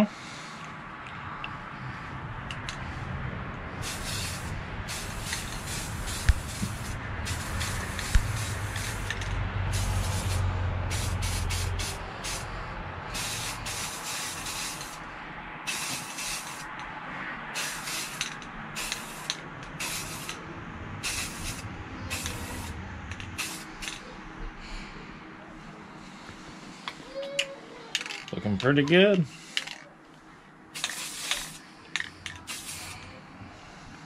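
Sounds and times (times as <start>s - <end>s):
low rumble: 0.8s - 13.7s, 20.4s - 26.4s
aerosol spray can hissing: 3.8s - 15.1s, 15.7s - 16.8s, 17.6s - 20.4s, 21.0s - 24.1s, 30.8s - 31.6s, 32.4s - 33.0s.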